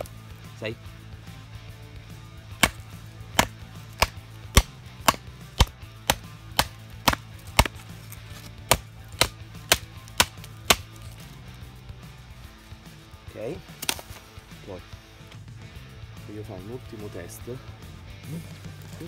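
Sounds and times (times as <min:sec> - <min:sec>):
knife chopping wood: 0:02.6 - 0:11.2, 0:13.7 - 0:14.2.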